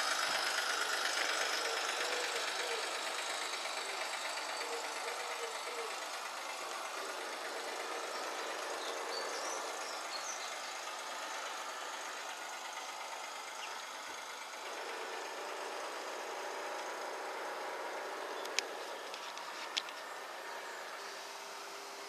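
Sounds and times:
model train humming: 0.0 - 22.0
faint bird chirps: 0.6 - 14.2
sharp clicks: 18.4 - 20.1.

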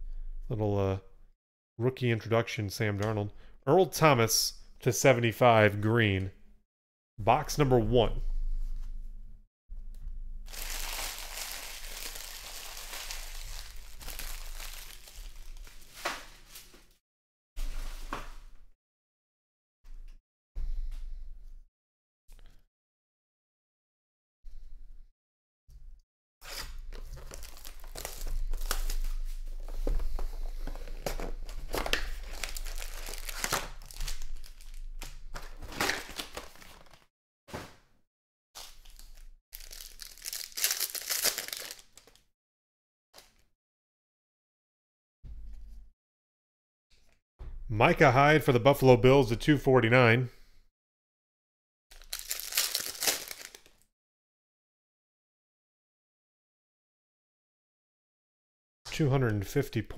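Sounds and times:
foil wrappers crinkling: 10.5 - 16.9, 26.9 - 37.0, 38.6 - 42.2, 51.9 - 53.8
cardboard box rustling: 29.8 - 34.0.

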